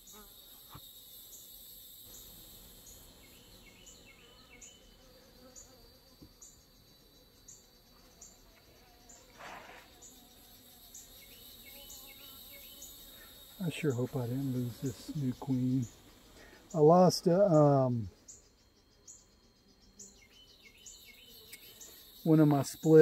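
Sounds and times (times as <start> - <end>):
honeybees buzzing: 0.0 - 23.0
insects chirping: 0.0 - 23.0
rustle: 7.8 - 18.6.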